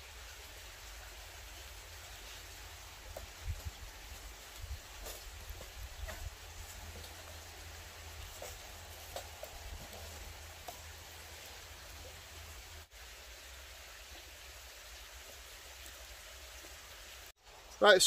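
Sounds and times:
soft fire hiss: 0:00.0 - 0:18.0
sticks burning crackles: 0:02.0 - 0:12.9.

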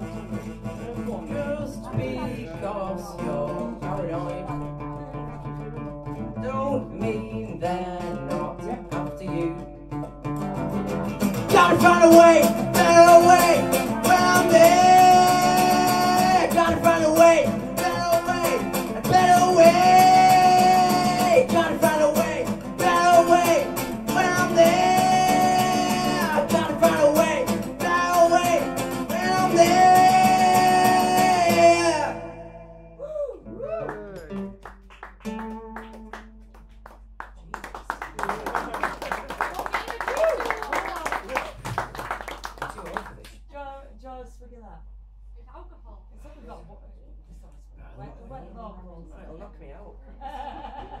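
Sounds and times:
man singing: 0:00.0 - 0:10.1, 0:11.3 - 0:32.9
strummed acoustic guitar: 0:00.0 - 0:33.0, 0:34.2 - 0:36.9.

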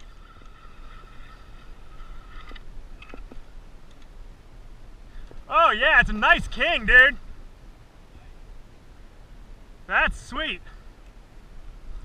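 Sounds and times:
fishing reel whining: 0:00.0 - 0:03.3
water noise: 0:00.0 - 0:12.0
wind: 0:00.0 - 0:12.0.

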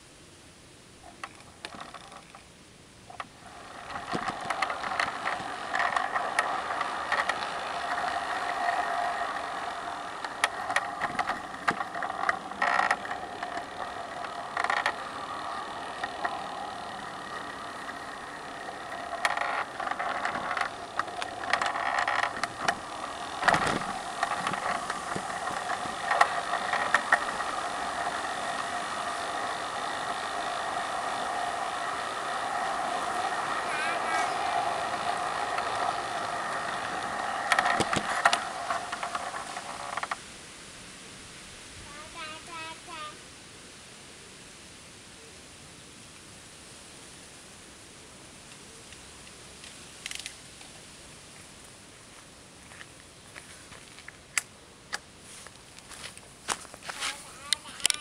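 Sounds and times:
model train motor whirring: 0:01.0 - 0:02.4, 0:03.1 - 0:40.4, 0:41.9 - 0:43.2, 0:49.2 - 0:50.8, 0:55.3 - 0:58.0
wheels clicking on rails: 0:01.0 - 0:40.9, 0:48.4 - 0:58.0.

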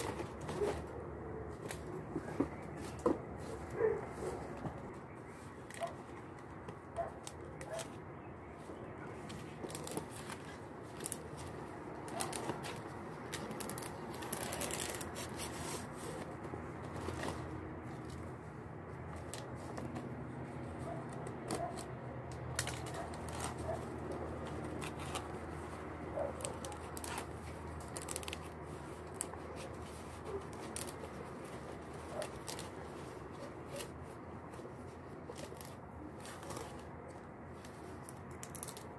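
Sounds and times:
leaves tearing and rustling: 0:09.2 - 0:18.2, 0:21.2 - 0:36.9, 0:37.6 - 0:38.9.

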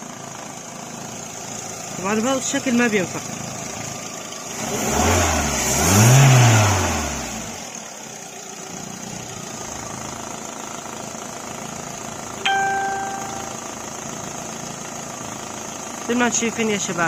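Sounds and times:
car engine revving and idling: 0:00.0 - 0:12.4
short ringing tone: 0:12.4 - 0:13.7.

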